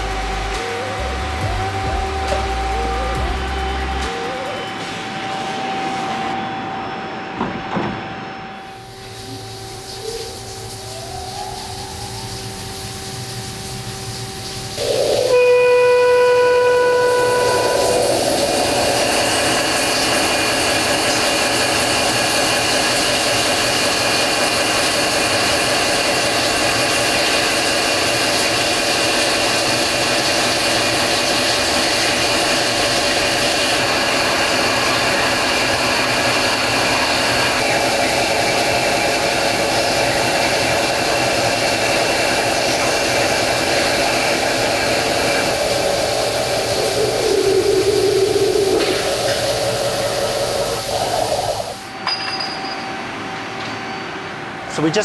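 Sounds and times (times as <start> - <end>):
lathe drilling whine: 0.0 - 52.0
spraying coolant hiss: 8.8 - 51.9
brief pitched tone: 14.8 - 18.5.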